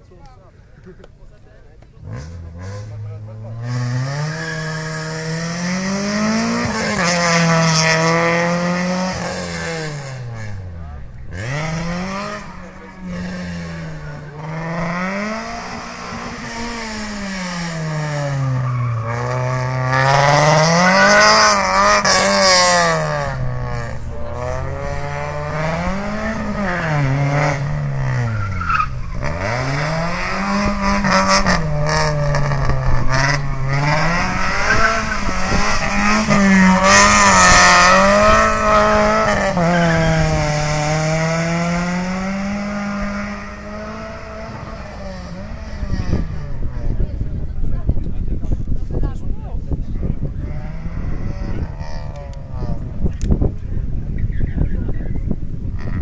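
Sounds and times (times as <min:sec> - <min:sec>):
car engine revving: 0:01.4 - 0:56.0.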